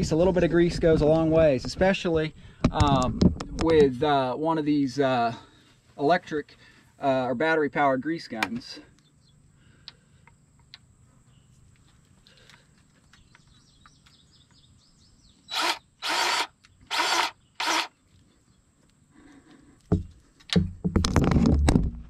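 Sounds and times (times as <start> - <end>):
electric grease gun running: 15.5 - 17.9
heavy knocks: 19.9 - 22.0.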